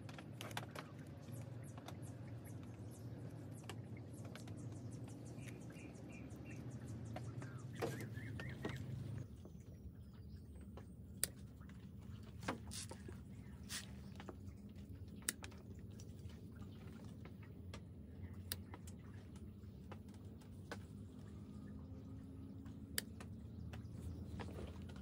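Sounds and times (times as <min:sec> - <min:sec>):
low steady hum: 0:00.0 - 0:25.0
faint clicks and ticks: 0:17.2 - 0:25.0.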